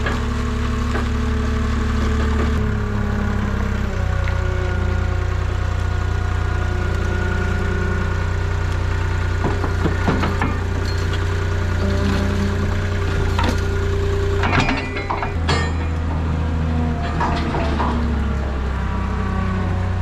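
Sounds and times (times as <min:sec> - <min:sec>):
diesel engine running: 0:00.0 - 0:20.0
short metal knocks: 0:14.4 - 0:16.3.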